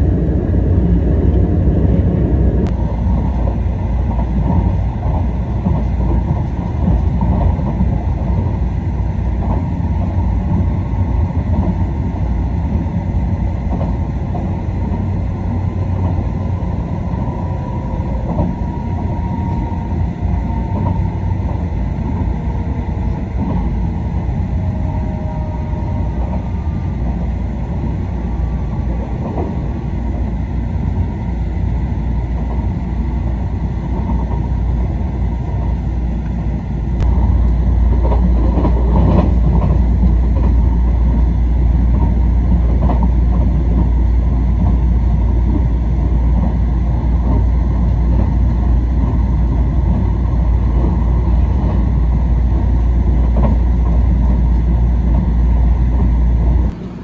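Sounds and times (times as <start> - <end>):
train rumble inside carriage: 0.0 - 57.0.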